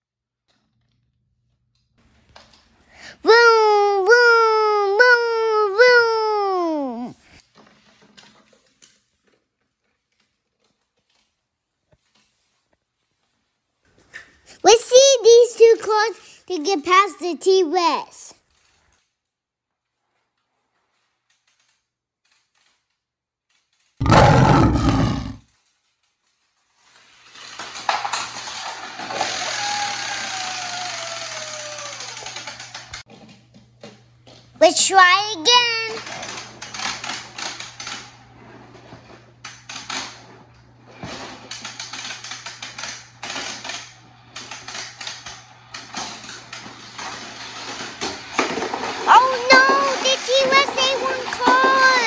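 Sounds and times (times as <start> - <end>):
dinosaur roar: 24.0 - 25.4
toy plastic clicking and rattling: 48.4 - 52.0.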